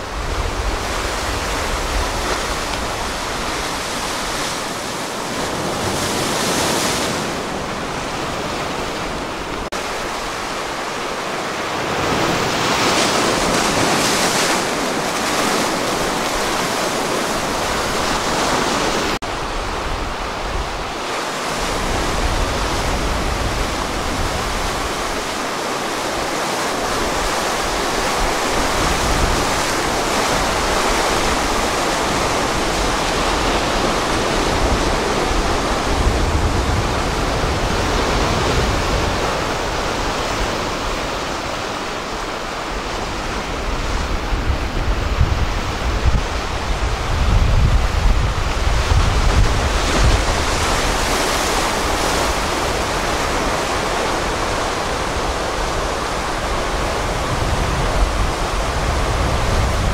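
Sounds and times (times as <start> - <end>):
ocean surf on sandy beach: 0.0 - 59.9
wind buffeting microphone: 0.0 - 59.9.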